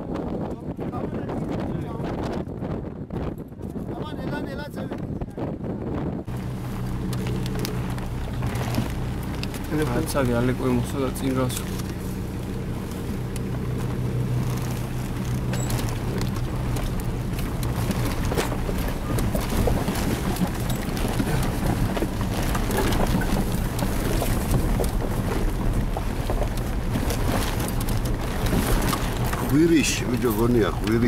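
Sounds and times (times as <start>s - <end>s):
car engine running: 6.3s - 31.0s
rattles and knocks of car: 6.4s - 31.0s.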